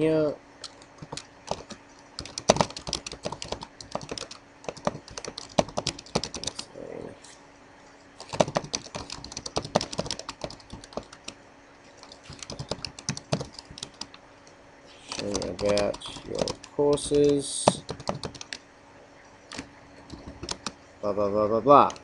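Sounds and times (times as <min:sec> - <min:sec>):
computer keyboard typing: 0:00.6 - 0:06.6, 0:08.2 - 0:11.4, 0:12.0 - 0:14.2, 0:15.1 - 0:18.6, 0:19.5 - 0:20.8, 0:21.8 - 0:22.0.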